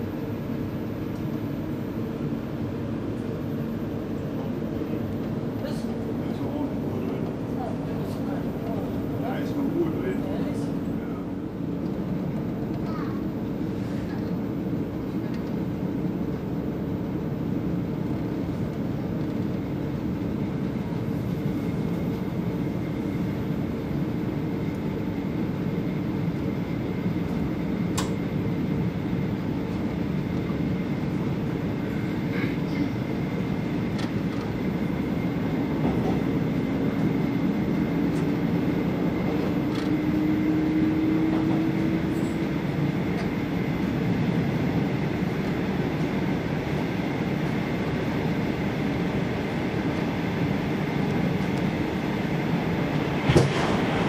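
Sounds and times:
train wheels roaring on rail: 0.0s - 54.0s
faint rising whine: 36.3s - 45.4s.

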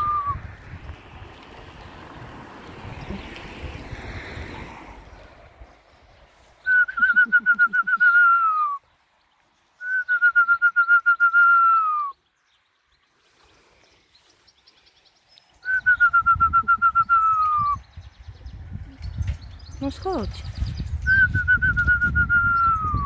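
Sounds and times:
long warbling whistles: 6.6s - 8.8s, 9.8s - 12.2s, 15.6s - 17.8s.

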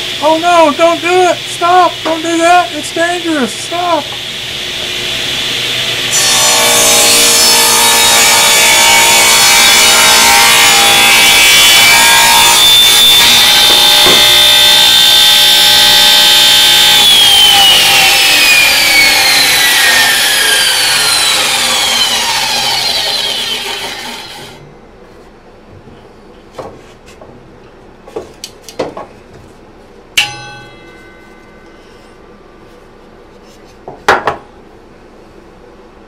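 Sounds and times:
table saw cutting wood: 0.0s - 24.6s
saw blade winding down: 10.8s - 24.6s
wood knocks: 13.6s - 14.4s.

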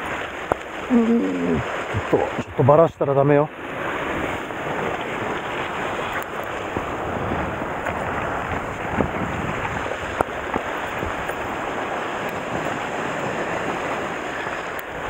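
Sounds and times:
surf washing against rocks: 0.0s - 15.0s
wind on microphone: 3.5s - 15.0s.

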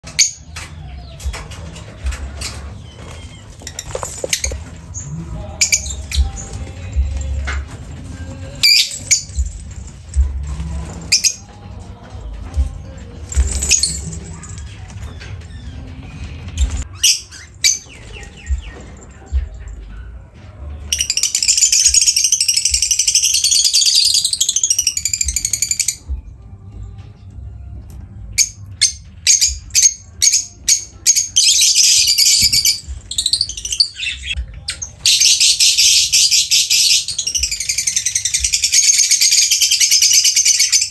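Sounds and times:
lovebirds calling: 0.0s - 9.8s, 20.9s - 26.2s, 28.4s - 40.9s
lovebirds chirping: 0.0s - 10.2s
high-pitched bird chattering: 21.0s - 26.0s, 28.4s - 40.9s.

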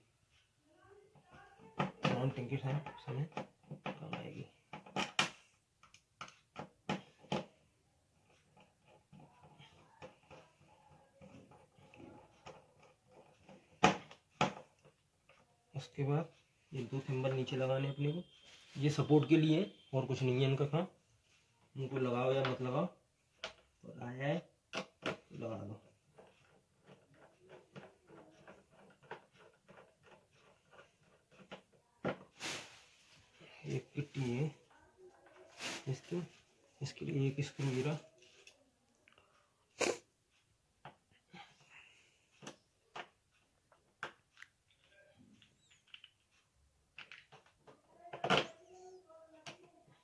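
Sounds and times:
screw ticking and scraping: 24.7s - 32.1s.

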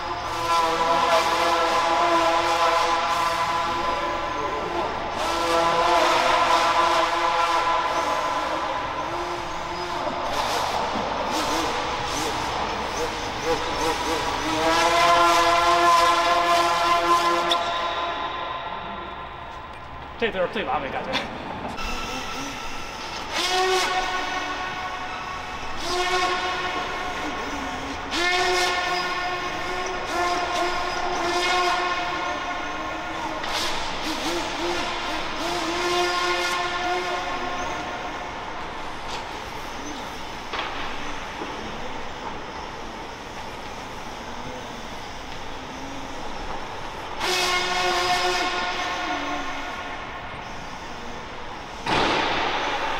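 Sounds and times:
model plane motor and propeller whine: 7.9s - 17.8s, 26.6s - 31.3s, 32.0s - 51.8s.

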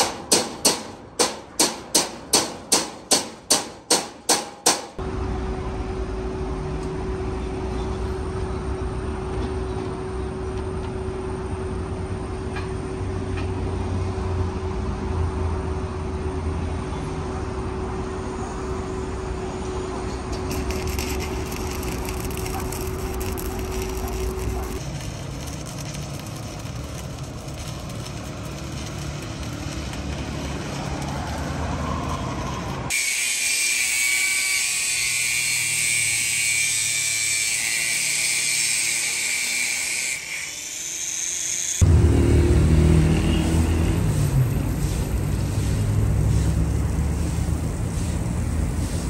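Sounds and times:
angle grinder cutting steel: 20.3s - 42.0s.

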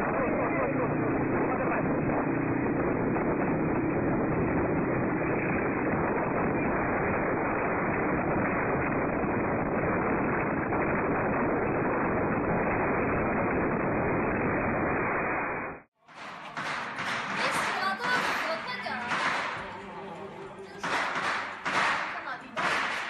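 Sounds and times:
road noise: 0.0s - 8.0s
rushing wind: 0.0s - 15.9s.

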